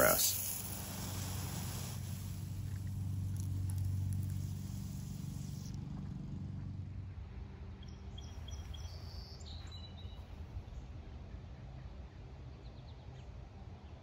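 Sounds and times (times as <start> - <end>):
sprinkler spray hissing: 0.0 - 5.8
low hum: 0.0 - 14.0
birds chirping: 7.8 - 13.4.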